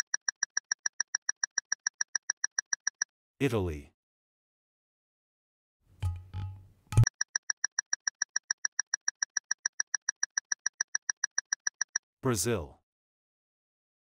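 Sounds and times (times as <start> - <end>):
rapid electronic timer ticks: 0.0 - 3.1, 7.0 - 12.0.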